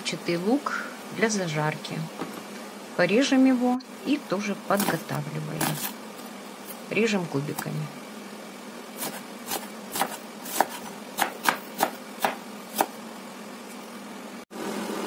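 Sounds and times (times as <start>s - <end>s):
knife chopping on wooden board: 9.0s - 13.0s.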